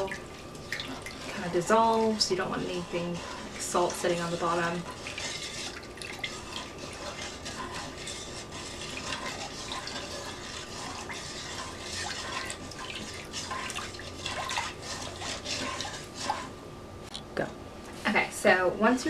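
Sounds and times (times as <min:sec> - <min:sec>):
liquid swishing in a bowl: 0:00.0 - 0:17.0.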